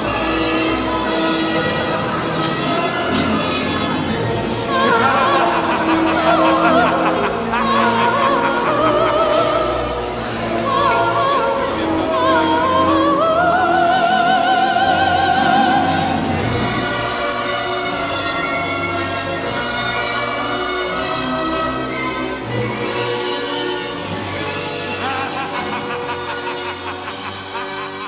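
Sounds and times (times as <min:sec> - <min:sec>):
orchestral music: 0:00.0 - 0:28.0
soprano singing with vibrato: 0:04.6 - 0:16.3.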